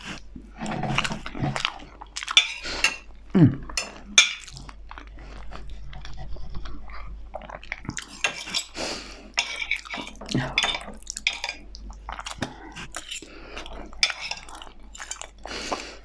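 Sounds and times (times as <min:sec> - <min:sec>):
cutlery scraping on a ceramic plate: 0:02.3 - 0:03.1, 0:08.1 - 0:08.8, 0:09.4 - 0:11.6, 0:14.0 - 0:14.6.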